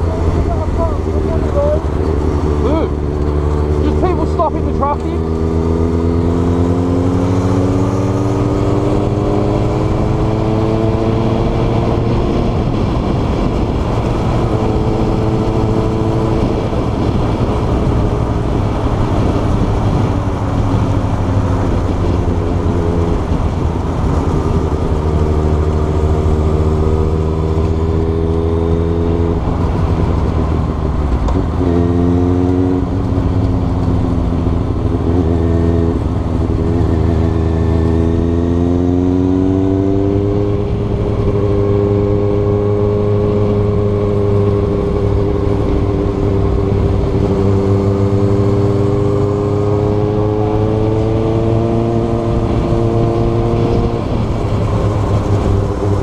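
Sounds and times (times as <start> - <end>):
motorcycle engine revving through gears: 0.0 - 56.0.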